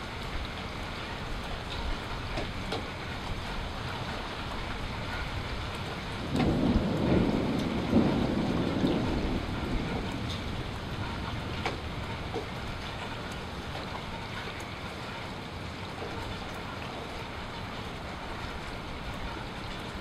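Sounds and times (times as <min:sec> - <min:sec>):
steady rain: 0:00.0 - 0:20.0
thunder rumbling: 0:05.1 - 0:13.8.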